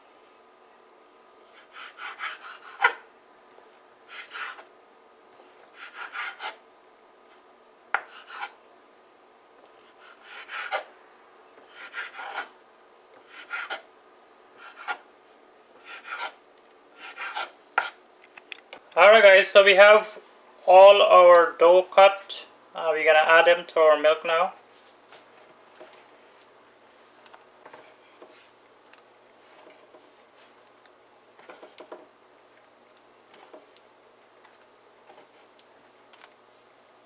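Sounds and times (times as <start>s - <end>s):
knife scraping cutting board: 1.5s - 3.0s, 4.1s - 4.7s, 8.0s - 8.6s, 9.9s - 10.9s, 11.6s - 12.5s, 14.6s - 15.0s, 15.8s - 16.4s, 17.0s - 18.0s.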